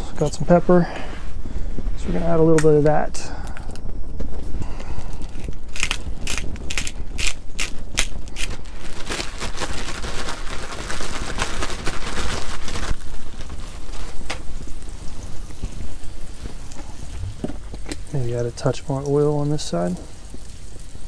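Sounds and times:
plastic bag crinkling: 5.0s - 20.7s
fish frying in oil: 9.5s - 21.0s.

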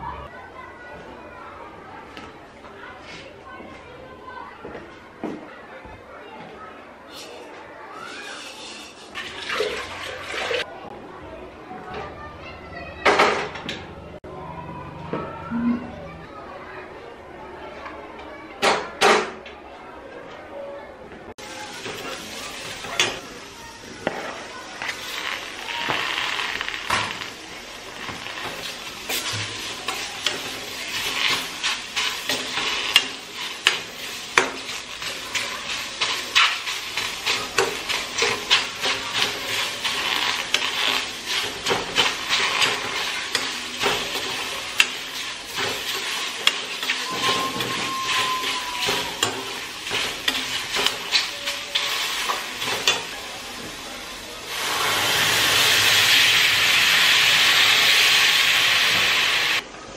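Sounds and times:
steel spoon scraping a pan: 8.1s - 10.6s, 24.7s - 53.4s
water poured into hot pan: 8.2s - 10.7s, 21.4s - 59.6s
steam hissing: 21.4s - 59.6s
vegetables sizzling in a pan: 21.4s - 59.6s.

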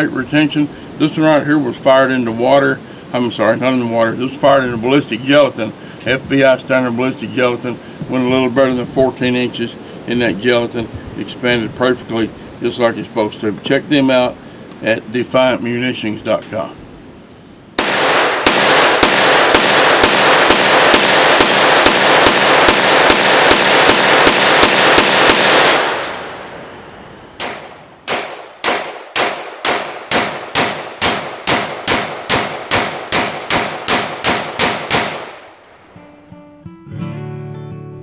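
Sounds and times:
pistol gunshots: 17.8s - 26.7s, 27.4s - 35.6s.

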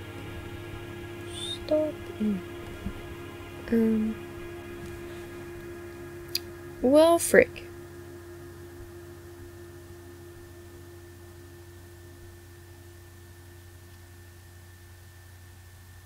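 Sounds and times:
light hiss: 0.0s - 3.1s
faint high whine: 0.0s - 16.0s
steady electrical hum: 0.0s - 16.0s.

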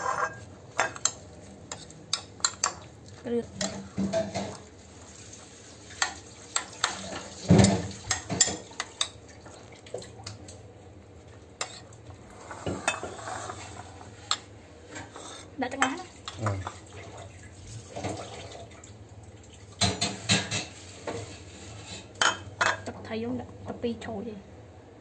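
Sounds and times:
wet squelching of stirred food: 0.2s - 19.8s.

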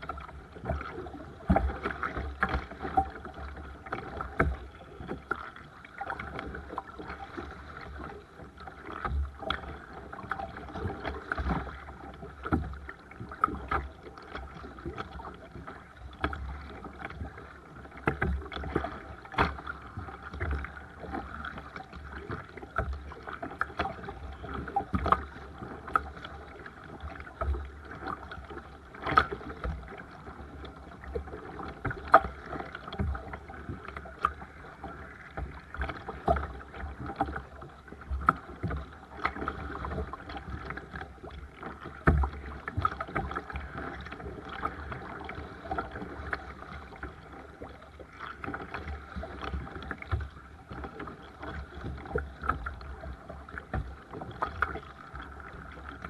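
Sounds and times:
paddle knocking on hull: 0.0s - 56.0s
paddle splashing water: 0.0s - 56.0s.

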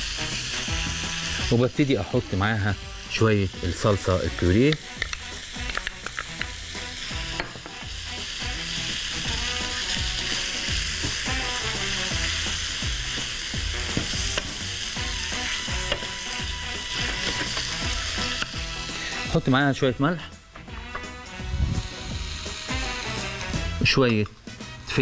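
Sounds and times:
meat sizzling in a frying pan: 0.0s - 19.8s, 20.7s - 25.0s
wooden spoon scraping a pan: 15.4s - 19.2s.

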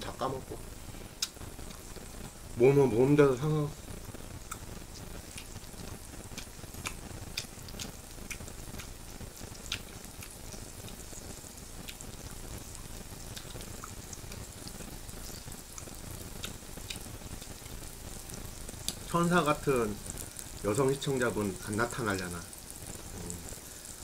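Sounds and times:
fat crackling and popping: 0.0s - 24.0s
meat sizzling on grill pan: 0.2s - 24.0s.

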